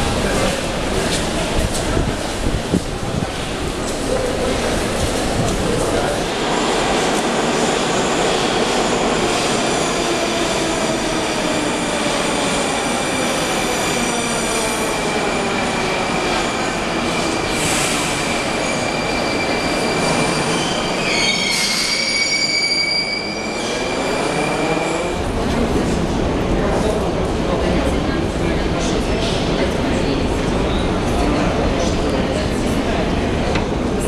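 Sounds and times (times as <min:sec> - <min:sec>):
train rumble and hiss: 0:00.0 - 0:18.6
train wheel squeal: 0:17.1 - 0:25.0.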